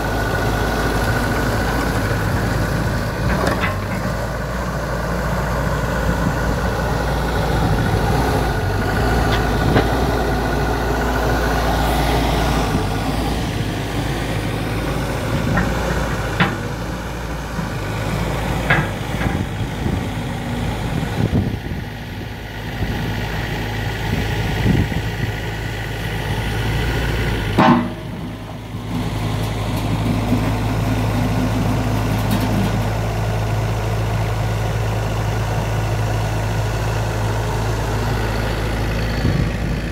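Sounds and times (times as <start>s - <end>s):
excavator diesel engine running: 0.0s - 39.9s
sharp metallic knocks: 27.6s - 28.3s.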